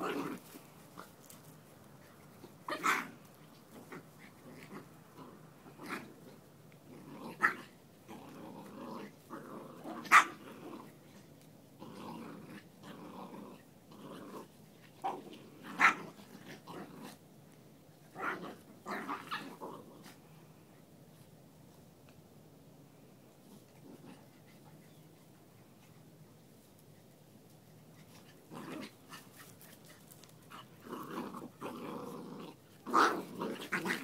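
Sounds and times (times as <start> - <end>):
dogs growling: 0.0 - 1.1, 2.4 - 11.2, 11.8 - 17.2, 18.1 - 20.2, 28.0 - 29.7, 30.4 - 34.0.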